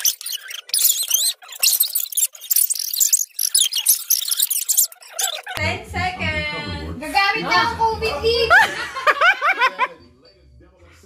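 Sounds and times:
high wavering squeaks: 0.0s - 5.6s.

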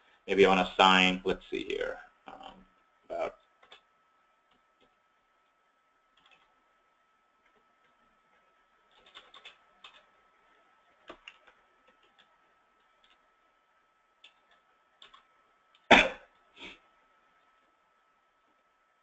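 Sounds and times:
keyboard keystrokes: 8.9s - 10.1s.

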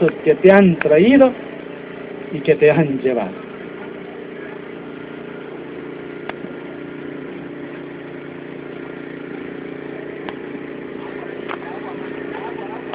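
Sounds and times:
engine idling: 0.0s - 12.9s.

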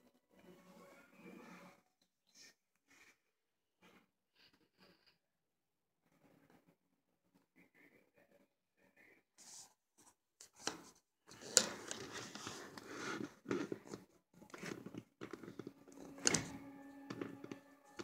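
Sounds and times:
mice nibbling and scratching: 10.4s - 18.0s.

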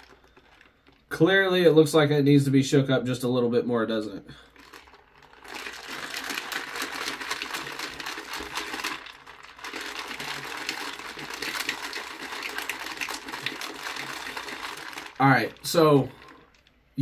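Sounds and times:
shaker cup rattling: 0.0s - 1.2s, 4.5s - 16.9s.

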